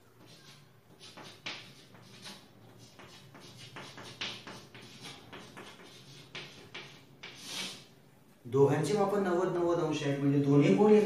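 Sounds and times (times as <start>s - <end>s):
chalk writing on blackboard: 0.0s - 7.9s.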